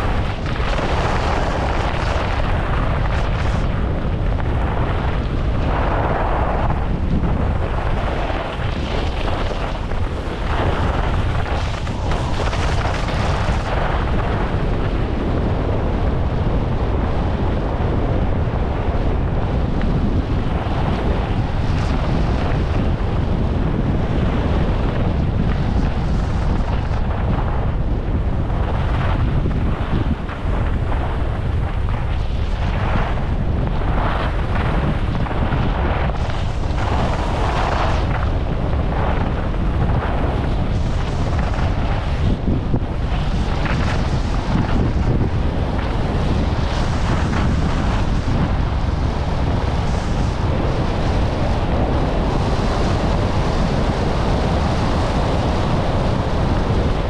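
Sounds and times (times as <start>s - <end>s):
skis carving on snow: 0.0s - 14.7s, 28.6s - 57.0s
wind buffeting microphone: 0.0s - 57.0s.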